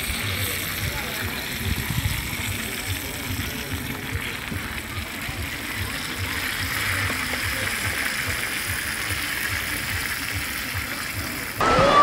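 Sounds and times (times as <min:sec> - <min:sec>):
meat and vegetables sizzling: 0:00.0 - 0:12.0.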